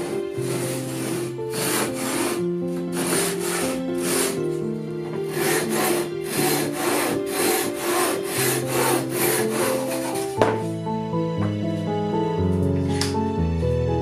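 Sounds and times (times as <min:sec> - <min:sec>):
pull saw cutting wood: 0:00.0 - 0:10.6
background music: 0:00.0 - 0:14.0.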